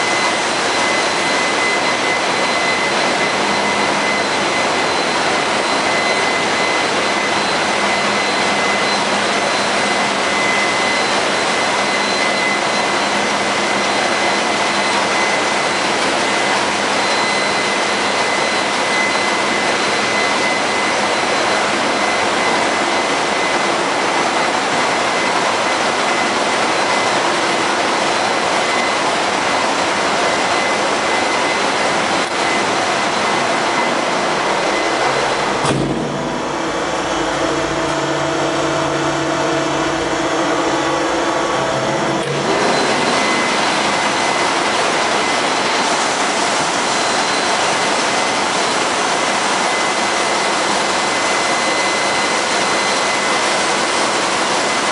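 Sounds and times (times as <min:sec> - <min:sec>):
engine room machinery roar: 0:00.0 - 0:54.9
high machinery whine: 0:00.0 - 0:54.9.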